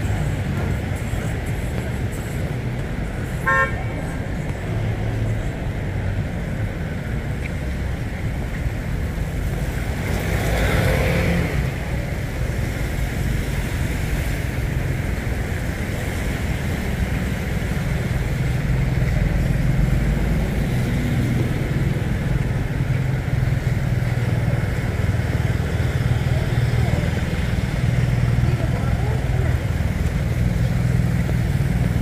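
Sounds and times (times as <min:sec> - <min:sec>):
traffic on wet street: 0:00.0 - 0:32.0
motorbike passing: 0:09.2 - 0:32.0.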